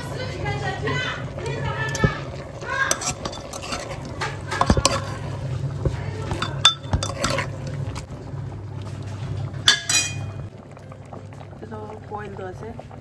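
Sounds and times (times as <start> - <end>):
low steady hum: 0.0 - 13.0
ladle scraping metal pot: 0.6 - 8.1, 8.8 - 10.5.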